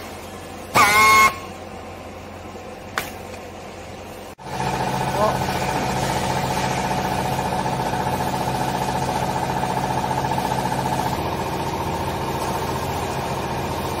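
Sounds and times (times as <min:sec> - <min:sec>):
hydraulic motor humming with whine: 0:00.7 - 0:01.7.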